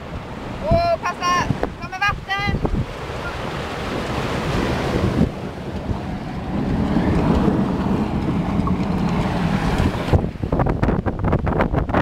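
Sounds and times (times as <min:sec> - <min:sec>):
wind rumbling on microphone: 0:00.0 - 0:12.0
water splashing past hull: 0:02.5 - 0:12.0.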